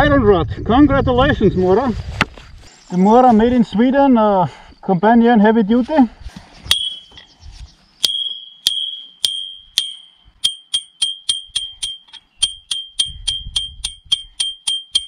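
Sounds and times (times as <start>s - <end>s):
knife striking metal rod: 6.7s - 7.2s, 8.0s - 15.0s.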